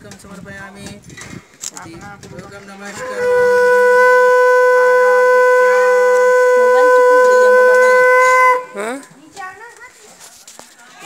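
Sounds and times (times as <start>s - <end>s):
conch shell blown: 3.0s - 9.0s.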